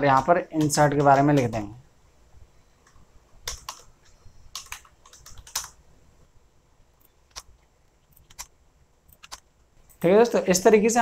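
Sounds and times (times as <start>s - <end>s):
computer keyboard typing: 0.0s - 1.8s, 2.8s - 5.8s, 7.0s - 8.5s, 9.1s - 10.1s.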